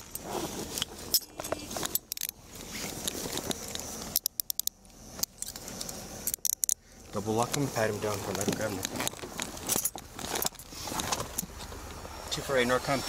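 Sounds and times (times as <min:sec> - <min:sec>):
handcuffs clinking and ratcheting: 0:00.0 - 0:02.4, 0:03.0 - 0:06.8, 0:08.3 - 0:10.7
clothing rustling on microphone: 0:00.0 - 0:04.1, 0:07.6 - 0:11.9.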